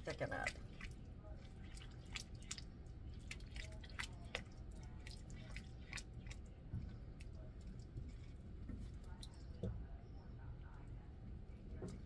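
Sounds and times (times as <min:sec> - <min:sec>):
spoon stirring thick filling: 0:00.0 - 0:09.9.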